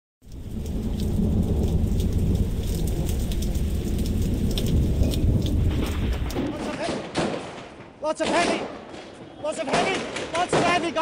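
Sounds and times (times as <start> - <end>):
raindrops ticking: 0.2 - 7.1
thunder rumbling: 0.2 - 8.0
rain: 0.2 - 8.5, 9.4 - 11.0.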